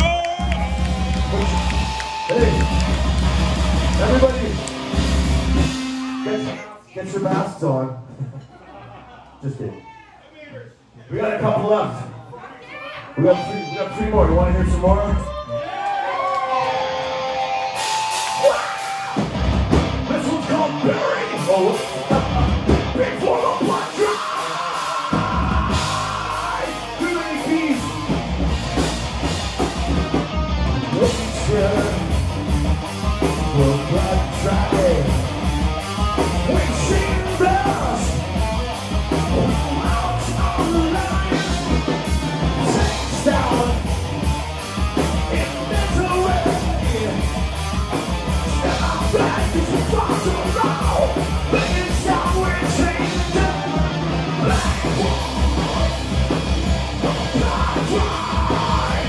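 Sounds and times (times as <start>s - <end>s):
shouted vocals: 0.0s - 4.6s, 12.1s - 14.1s, 14.8s - 19.3s, 20.7s - 28.3s, 36.4s - 38.4s, 45.2s - 47.3s, 48.3s - 56.1s, 57.0s - 59.0s
heavy metal band playing: 0.0s - 6.7s, 13.2s - 15.3s, 16.5s - 59.0s.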